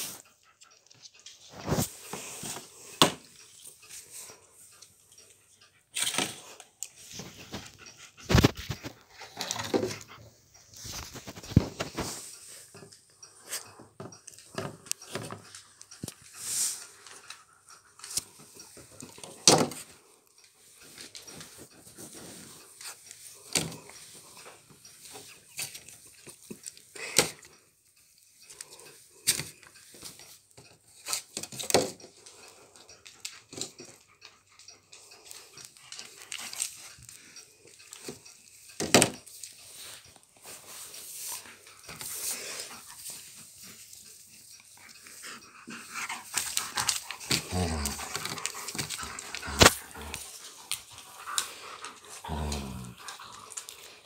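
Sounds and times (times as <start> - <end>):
dog sounds: 40.4 - 54.0.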